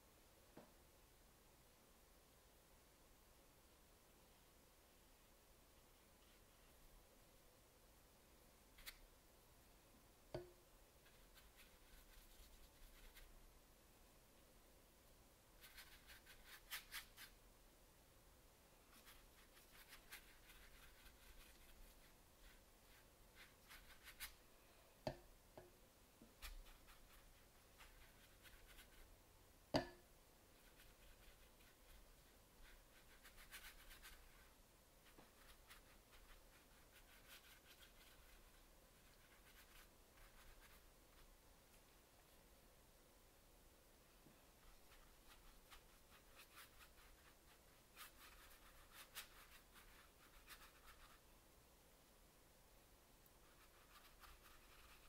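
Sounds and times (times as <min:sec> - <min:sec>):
brush strokes on paper: 0:05.7 - 0:06.9, 0:11.0 - 0:13.4, 0:15.6 - 0:17.4, 0:18.8 - 0:24.9, 0:26.3 - 0:29.2, 0:30.4 - 0:42.4, 0:44.2 - 0:51.3, 0:53.4 - 0:55.0.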